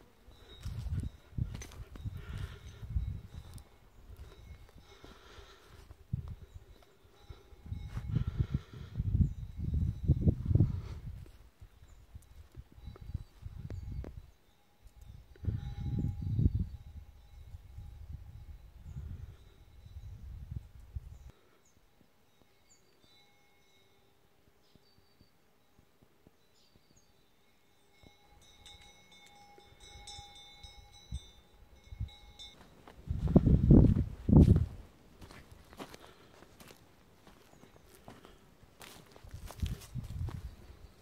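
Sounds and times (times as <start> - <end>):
wind buffeting microphone: 0.5 - 6.8, 7.5 - 14.4, 15.1 - 21.3, 29.8 - 36.0, 38.8 - 41.0.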